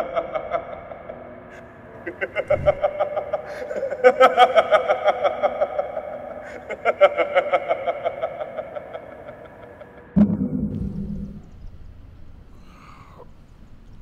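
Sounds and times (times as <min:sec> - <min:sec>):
man laughing hard: 0:00.0 - 0:10.2
sudden low hit: 0:10.2 - 0:12.4.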